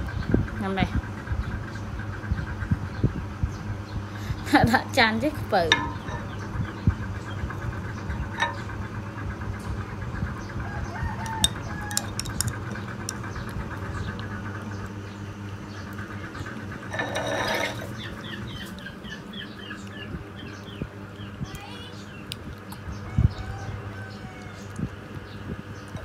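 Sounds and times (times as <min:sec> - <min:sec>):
steady low hum: 0:00.0 - 0:26.0
chickens clucking: 0:05.4 - 0:21.4.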